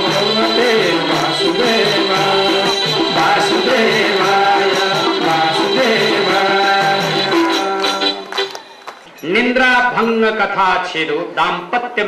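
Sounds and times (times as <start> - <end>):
devotional singing: 0.0 - 8.6
instrumental accompaniment: 0.0 - 9.2.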